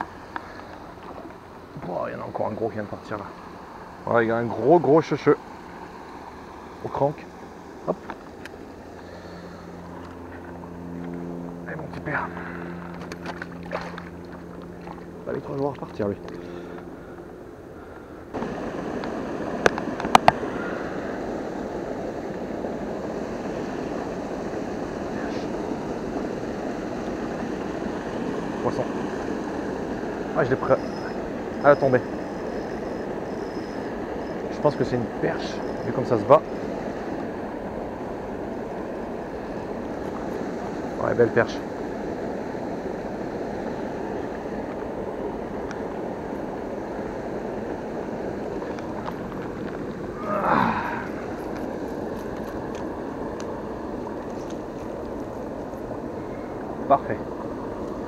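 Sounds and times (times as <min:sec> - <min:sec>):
river water rushing: 0:11.8 - 0:58.0.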